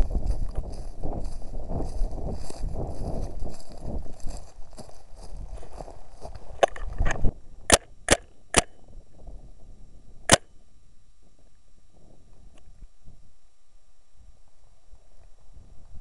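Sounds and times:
rustling through brush: 0:00.0 - 0:07.0.

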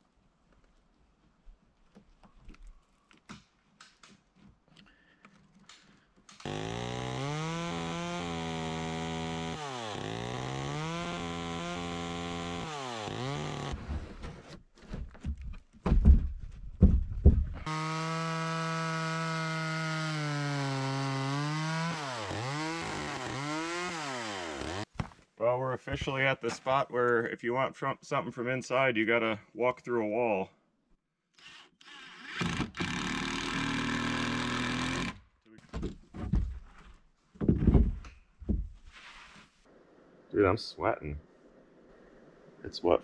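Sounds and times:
chainsaw cutting wood: 0:06.3 - 0:14.6, 0:17.6 - 0:24.9, 0:31.4 - 0:35.3
knocks and clatter: 0:15.0 - 0:17.6, 0:35.7 - 0:38.8.

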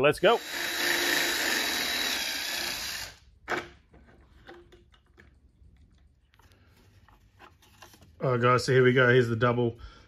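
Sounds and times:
cordless drill boring: 0:00.4 - 0:03.2.

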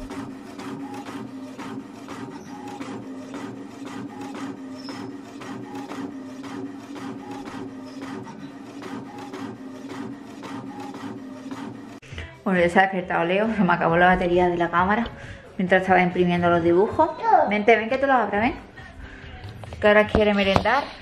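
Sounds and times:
inkjet printer printing: 0:00.0 - 0:12.0.

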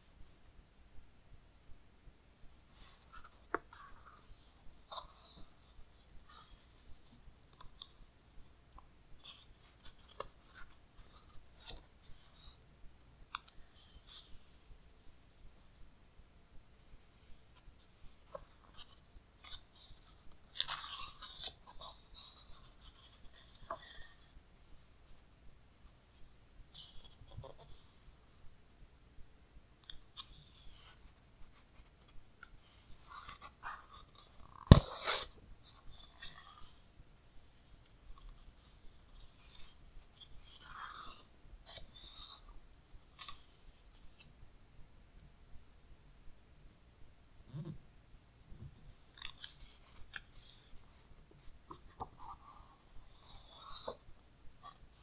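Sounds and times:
book page turning: 0:32.9 - 0:35.4.

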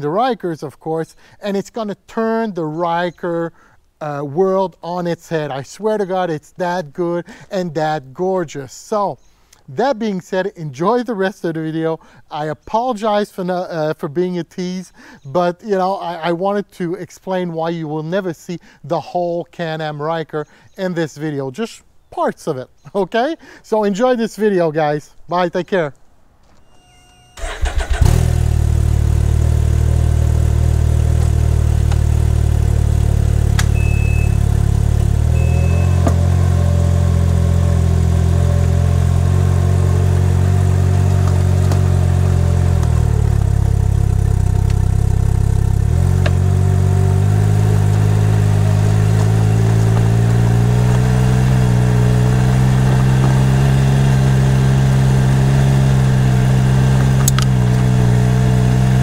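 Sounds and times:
motorbike engine at low revs: 0:27.4 - 0:59.0.

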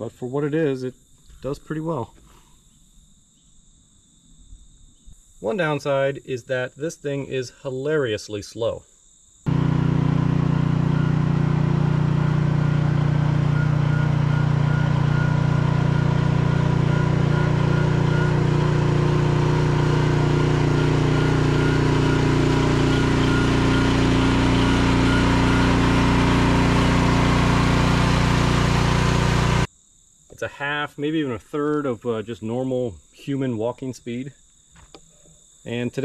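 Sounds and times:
excavator engine running steadily: 0:09.5 - 0:29.7.

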